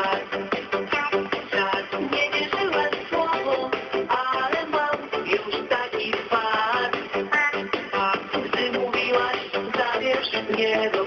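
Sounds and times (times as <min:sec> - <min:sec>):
dance-pop song over radio: 0:00.0 - 0:11.0.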